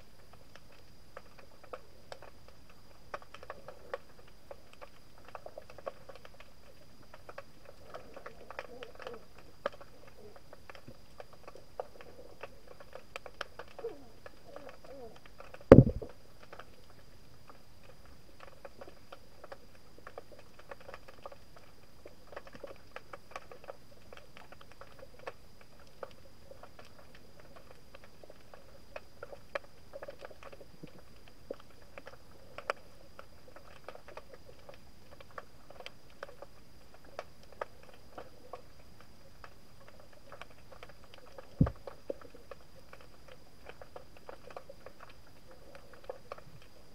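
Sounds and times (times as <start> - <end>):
underwater crackle of small clicks: 0.0 - 46.9
loud thump: 15.7 - 16.1.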